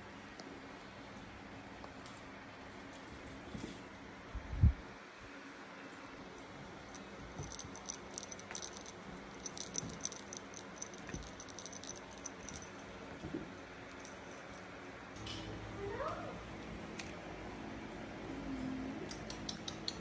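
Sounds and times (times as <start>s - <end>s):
toy jingling and rattling: 6.4s - 12.9s, 14.0s - 14.7s.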